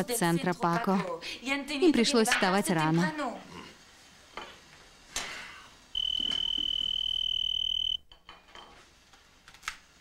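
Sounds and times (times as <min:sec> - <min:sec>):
telephone ringing: 0:06.0 - 0:08.1.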